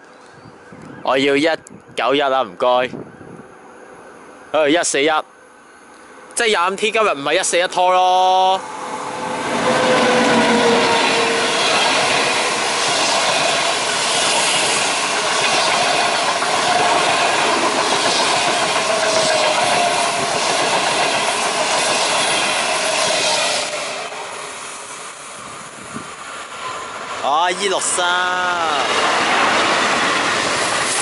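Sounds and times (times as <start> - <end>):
train wheels rushing on rails: 6.6 - 31.0.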